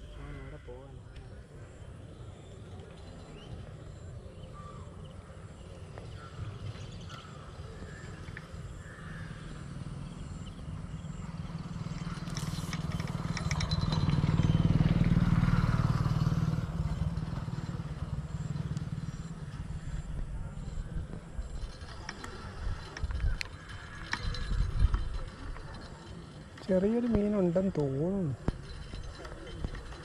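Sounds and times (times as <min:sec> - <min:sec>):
vehicle engine passing by: 0:09.3 - 0:22.9.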